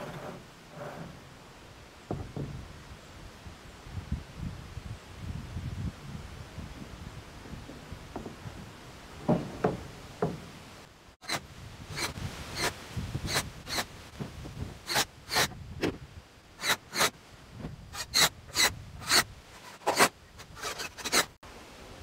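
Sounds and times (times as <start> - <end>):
rasping scrapes: 16.6 - 17.1, 18.0 - 21.4.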